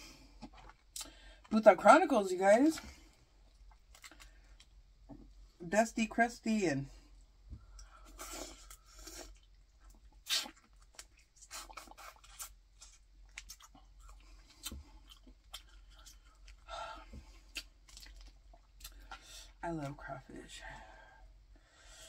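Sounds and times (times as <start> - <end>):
wet sucking and lip smacks: 7.8 - 13.8.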